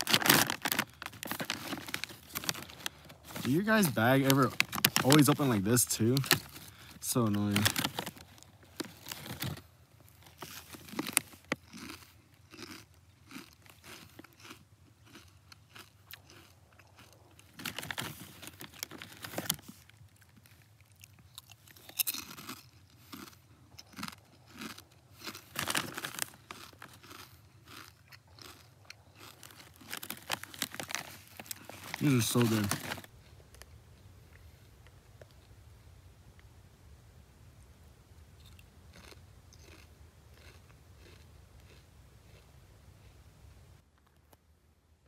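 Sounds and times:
person chewing potato chips: 0.0 - 33.7, 38.4 - 43.2.

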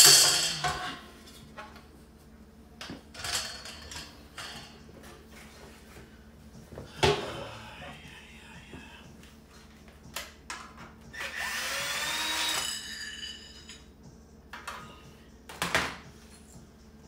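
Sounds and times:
cordless drill driving screw: 11.2 - 12.6.

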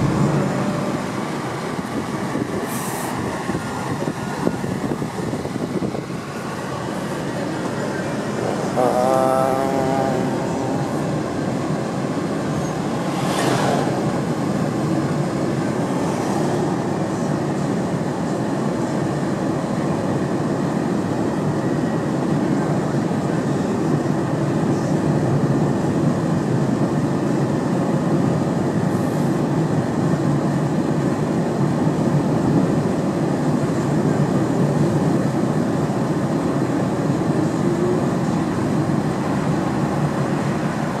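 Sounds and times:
car road noise rumble: 0.0 - 41.0
brief hiss: 2.6 - 3.2.

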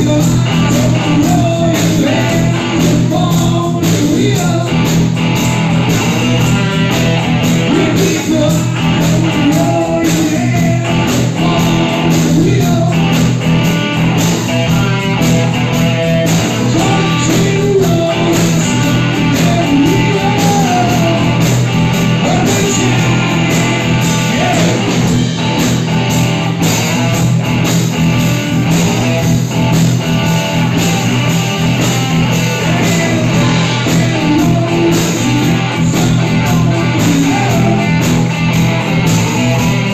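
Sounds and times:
person singing: 0.0 - 5.0, 7.6 - 13.4, 16.5 - 25.1, 32.3 - 38.3
drums: 0.0 - 39.9
electric guitars: 0.0 - 39.9.

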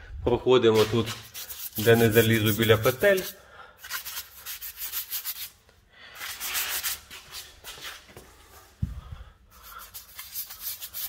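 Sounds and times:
paintbrush scrubbing a surface: 0.8 - 5.6, 6.2 - 8.0, 9.5 - 11.0.

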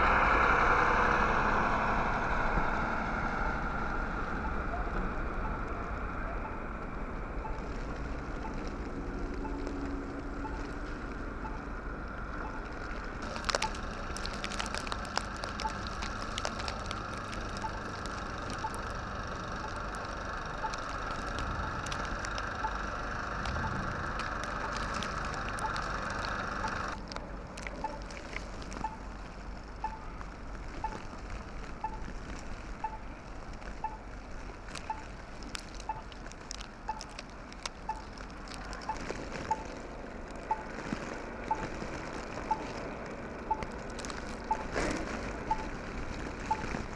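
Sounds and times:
snowblower engine running: 12.0 - 27.0
sharp clicks: 12.4 - 29.1, 34.7 - 39.8.

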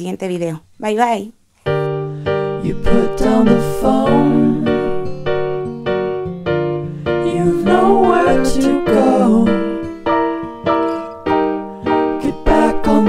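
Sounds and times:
piano-like chords: 1.7 - 13.0
person singing: 2.6 - 5.2, 7.2 - 10.0, 12.1 - 13.0.

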